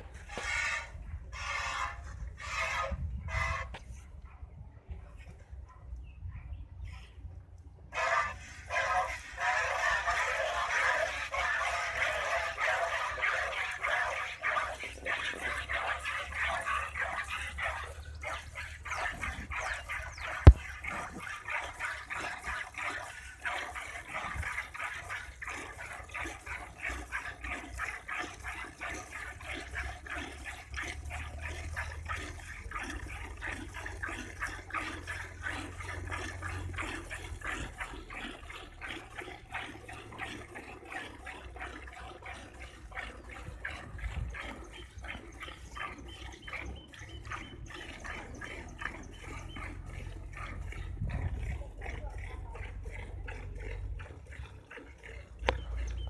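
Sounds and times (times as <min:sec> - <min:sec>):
milk squirting into steel pail: 0:08.3 - 0:44.6.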